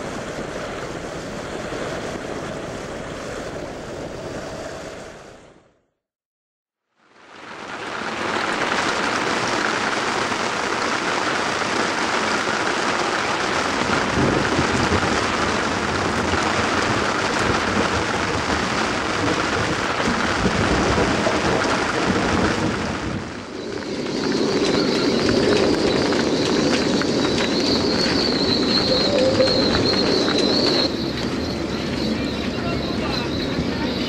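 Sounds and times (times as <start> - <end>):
rain pouring on a sailboat: 6.9 - 31.6.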